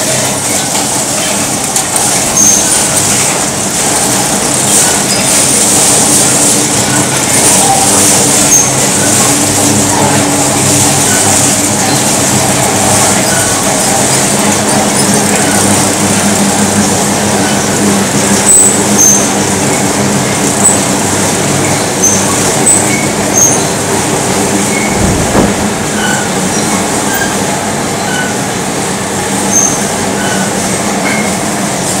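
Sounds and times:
machine mechanical din: 0.0s - 32.0s
high-pitched machine squeaks: 0.1s - 23.8s, 24.5s - 28.6s, 29.4s - 31.4s.

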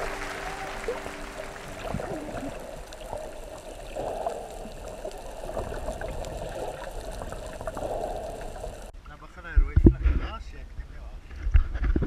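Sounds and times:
water trickling and splashing: 0.0s - 9.0s.

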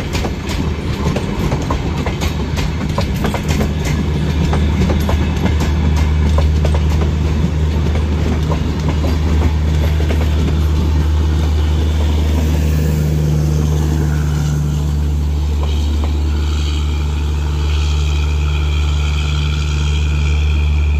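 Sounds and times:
train running gear rumbling: 0.0s - 20.9s
generator car droning: 4.0s - 20.9s.

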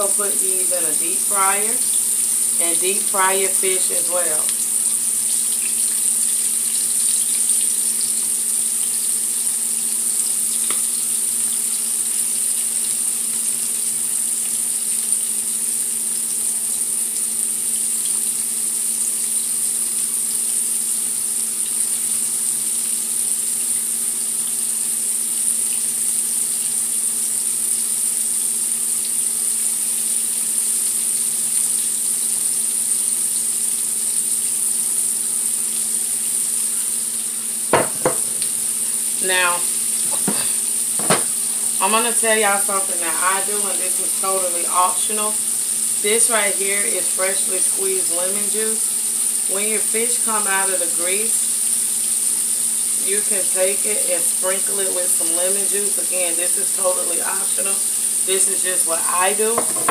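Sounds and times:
faint steady hum: 0.0s - 13.9s
food deep-frying in oil: 0.0s - 59.9s.

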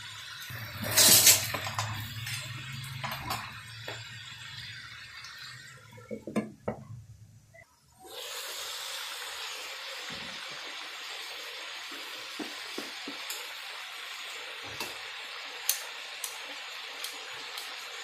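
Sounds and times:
food sizzling in wok: 0.0s - 6.2s, 7.9s - 18.0s
metal cookware clattering: 0.5s - 3.6s.

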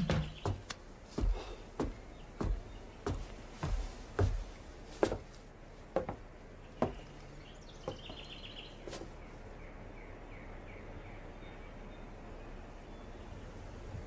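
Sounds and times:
bird chirping: 0.0s - 4.6s, 6.1s - 14.0s
soft footsteps: 0.0s - 9.5s.

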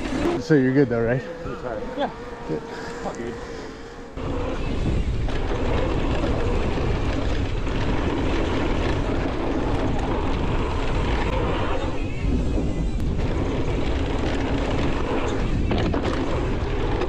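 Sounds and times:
bike tyres on dirt trail: 0.0s - 0.8s, 2.7s - 17.0s
wind buffeting microphone: 4.2s - 17.0s.

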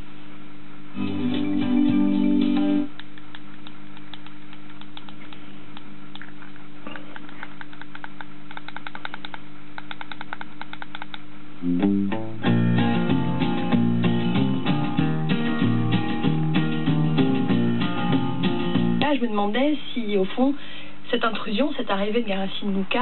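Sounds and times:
guitar music from car speaker: 1.0s - 2.9s, 11.6s - 19.0s.

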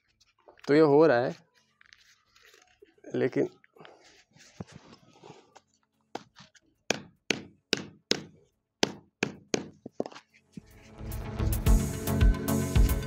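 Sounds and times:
hammer knocking on paper: 6.9s - 10.0s
background music: 10.7s - 13.0s.

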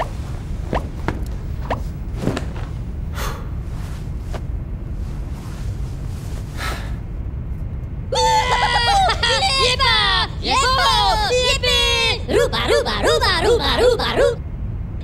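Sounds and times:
steady low rumble: 0.0s - 15.0s
man breathing and snorting: 3.1s - 4.2s, 6.4s - 7.1s.

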